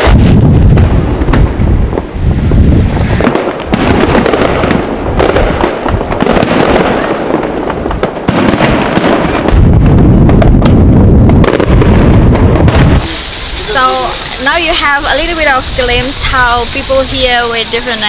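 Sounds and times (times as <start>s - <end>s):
fireworks bursting and crackling: 0.0s - 18.0s.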